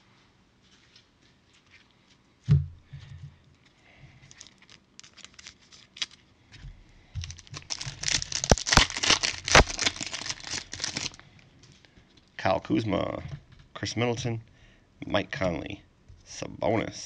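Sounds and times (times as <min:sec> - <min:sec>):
thump: 0:02.5 - 0:03.2
foil pack tearing and crinkling: 0:04.3 - 0:06.3, 0:07.2 - 0:11.2.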